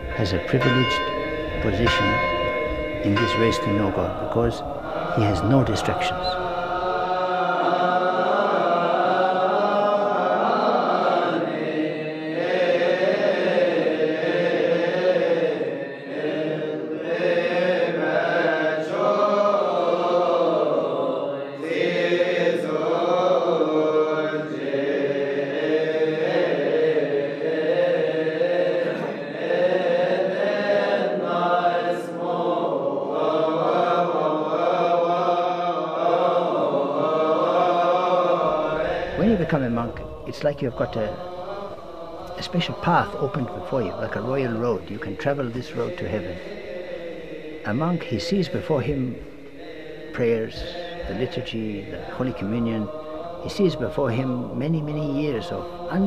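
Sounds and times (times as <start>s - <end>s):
slow chanting voices: 0.0s - 56.0s.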